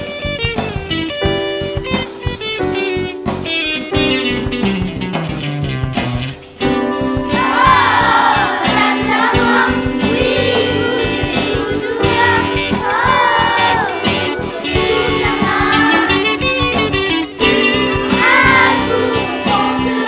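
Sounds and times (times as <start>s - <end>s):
instrumental backing music: 0.0s - 20.0s
children singing in unison: 7.3s - 20.0s.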